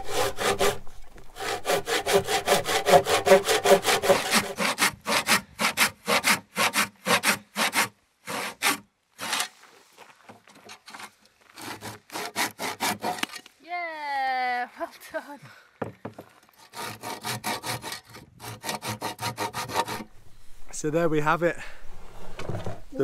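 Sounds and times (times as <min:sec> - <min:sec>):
handsaw cutting timber: 0:00.0 - 0:09.5, 0:10.6 - 0:13.4, 0:16.6 - 0:20.1.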